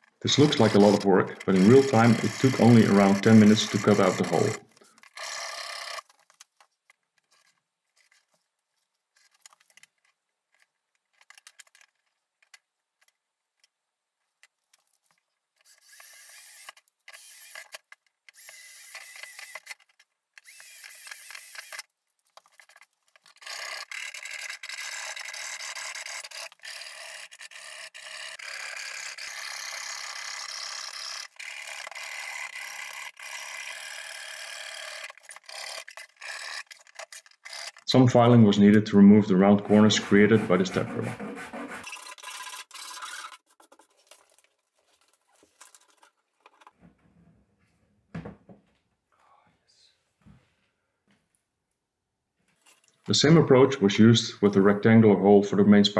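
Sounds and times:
cordless drill boring plastic: 0.0s - 6.5s, 15.6s - 38.3s, 41.5s - 43.9s
hacksaw cutting plastic: 0.0s - 8.3s, 9.2s - 13.7s, 14.4s - 37.9s, 39.6s - 46.8s.

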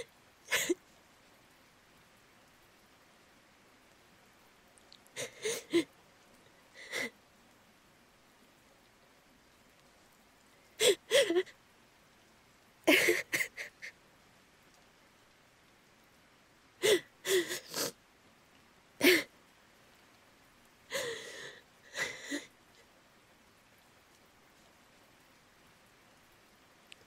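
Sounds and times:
woman sobbing: 0.0s - 0.8s, 5.2s - 5.9s, 6.8s - 7.1s, 10.8s - 11.6s, 12.9s - 14.0s, 16.8s - 17.9s, 19.0s - 19.3s, 20.9s - 22.5s.

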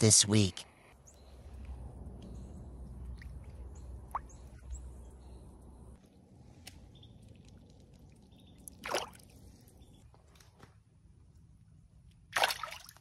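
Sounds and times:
small water sounds: 1.1s - 10.1s, 11.3s - 13.0s
fish splashing into water: 7.2s - 9.6s, 12.3s - 13.0s.

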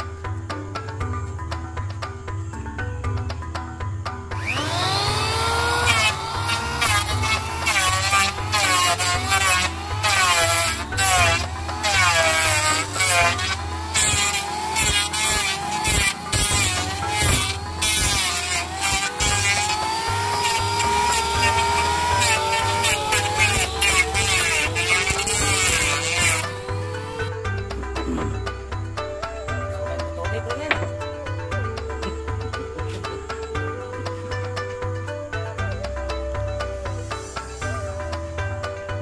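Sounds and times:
electric planer shaving wood: 4.4s - 27.4s.

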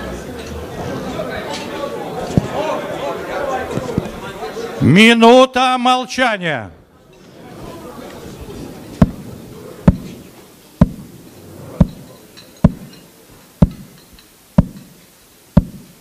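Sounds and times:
metronome knocking: 14.6s - 14.9s.

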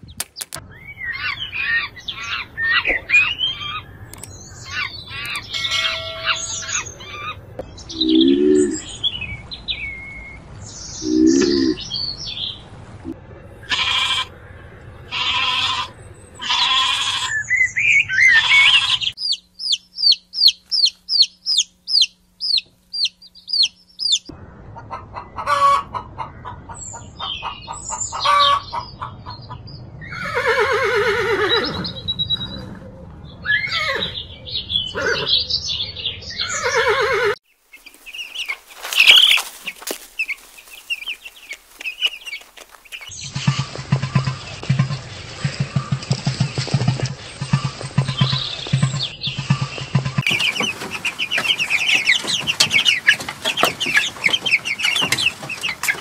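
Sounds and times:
chickens clucking and squawking: 4.6s - 9.0s, 18.1s - 35.5s, 36.4s - 56.0s
goat bleating: 13.6s - 14.3s, 15.1s - 17.4s, 18.3s - 19.2s
bird peeping rapidly: 17.4s - 24.3s, 37.5s - 44.6s, 45.5s - 56.0s
chicks peeping: 18.2s - 29.8s, 37.7s - 56.0s.

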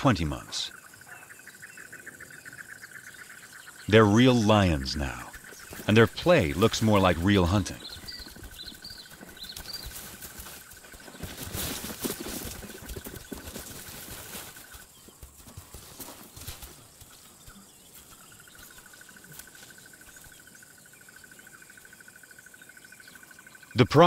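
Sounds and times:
pulsing insect trill: 0.0s - 23.9s
animals running through dry bush: 4.7s - 21.9s.

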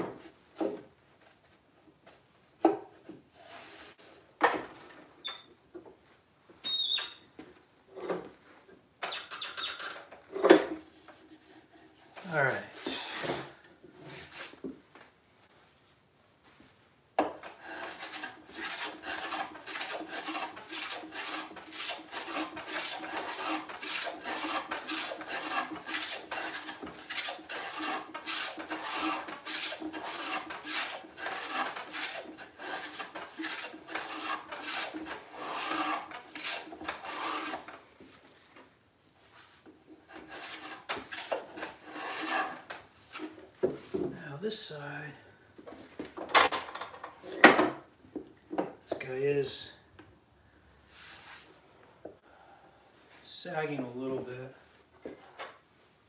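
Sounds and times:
hand plane shaving wood: 17.4s - 37.8s, 40.0s - 43.4s.

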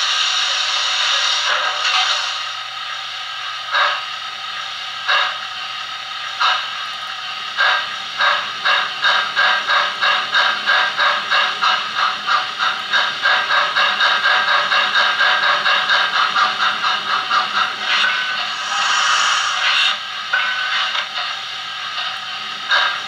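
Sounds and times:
continuous steam hiss: 0.0s - 23.0s
steam locomotive chuffs from speaker: 0.0s - 23.0s.

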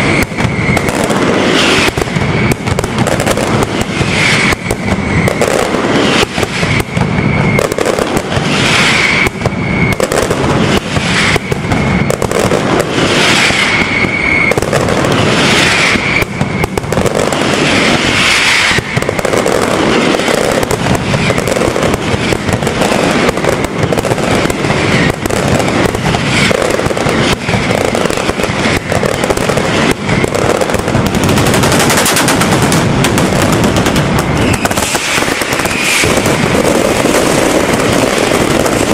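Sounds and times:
firecrackers banging rapidly: 0.0s - 38.9s
short high whistle: 13.2s - 14.6s, 34.4s - 36.1s.

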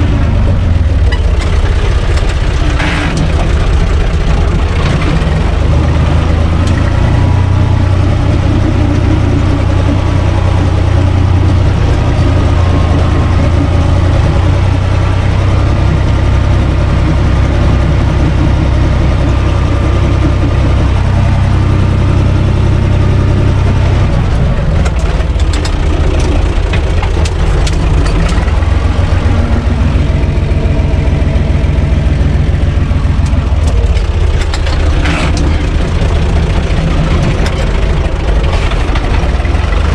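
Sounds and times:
tractor diesel engine running: 0.0s - 39.9s
clicks and rattles: 1.0s - 5.7s, 24.7s - 29.9s, 33.0s - 39.9s.

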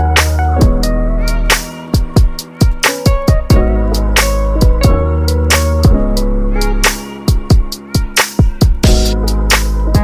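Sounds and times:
background music with drum beat: 0.0s - 10.0s.

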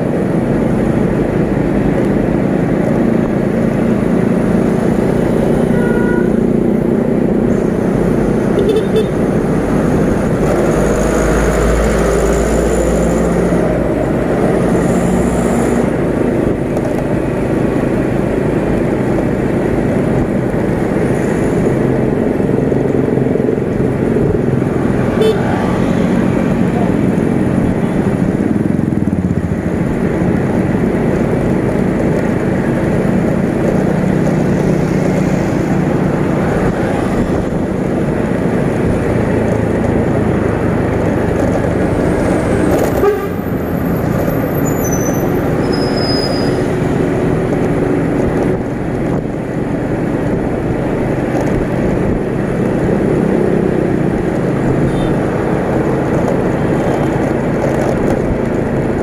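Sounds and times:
road traffic: 0.0s - 59.0s
motorcycle engine running: 16.0s - 44.4s.

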